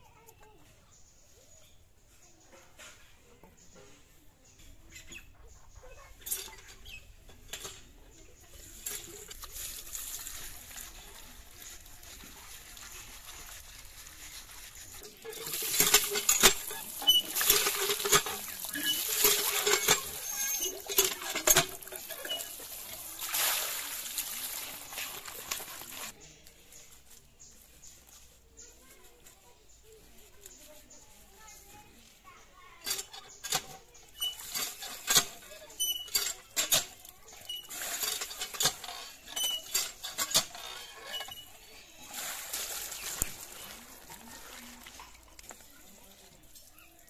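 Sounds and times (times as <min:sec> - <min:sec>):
water pouring and splashing on fish: 0:08.7 - 0:26.2, 0:34.1 - 0:47.0.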